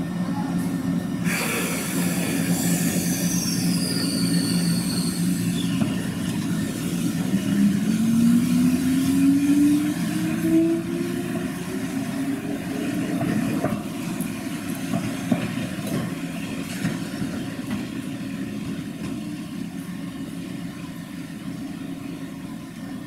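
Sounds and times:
electric train motors humming: 0.0s - 23.0s.

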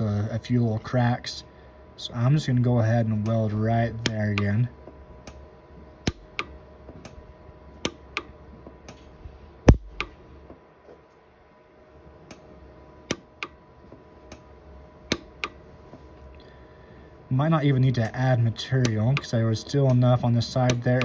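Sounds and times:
welder pulse snaps: 5.2s - 7.2s, 7.8s - 9.1s, 9.7s - 10.2s, 13.1s - 13.6s, 15.1s - 15.6s.

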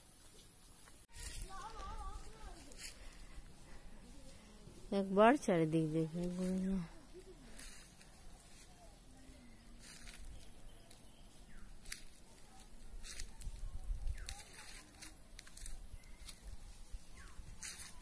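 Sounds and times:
footsteps crunching dry leaves: 0.0s - 18.0s
wind rumble on microphone: 13.0s - 14.4s.

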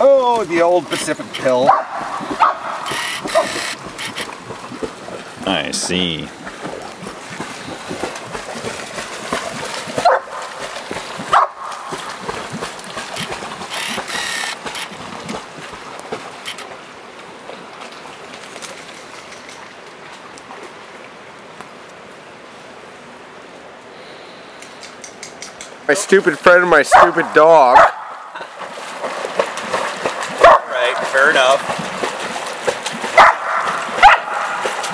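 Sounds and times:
river water flowing: 0.0s - 34.9s
dog barks: 1.6s - 3.7s, 10.0s - 10.4s, 11.3s - 11.7s, 26.9s - 28.2s, 30.4s - 31.0s, 33.2s - 34.6s.

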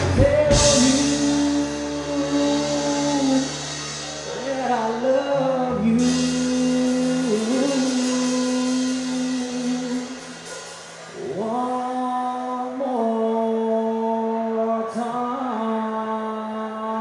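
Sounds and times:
drum kit with cymbals: 0.0s - 12.1s
country band playing live: 0.0s - 17.0s.

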